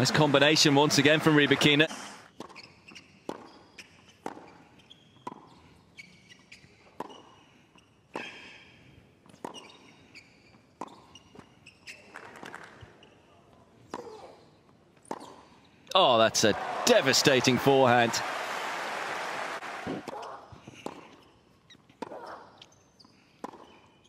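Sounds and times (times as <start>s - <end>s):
tennis ball bouncing: 2.3s - 5.6s, 6.3s - 7.4s, 8.1s - 8.6s, 9.2s - 9.9s, 10.8s - 11.5s, 19.9s - 22.4s, 23.4s - 24.0s
shoe squeaks on court: 2.3s - 8.7s, 9.3s - 15.6s, 20.8s - 24.0s.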